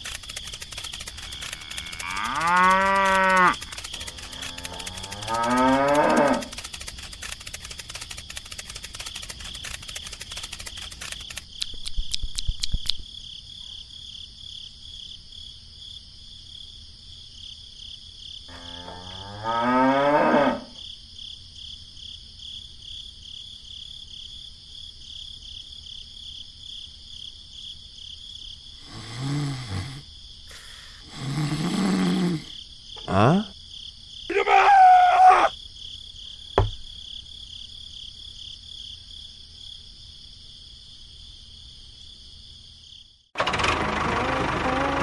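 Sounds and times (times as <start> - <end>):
rapid clicking: 0.0 - 13.0
cattle mooing: 1.2 - 3.6, 4.2 - 6.5, 18.5 - 20.7.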